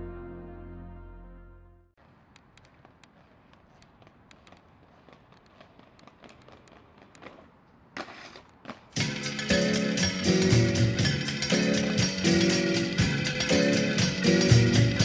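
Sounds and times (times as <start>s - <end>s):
music: 0.0s - 2.0s, 9.0s - 15.0s
skates scraping: 2.0s - 9.1s
skate wheels rolling on concrete: 2.0s - 15.0s
small clicks: 2.3s - 7.5s.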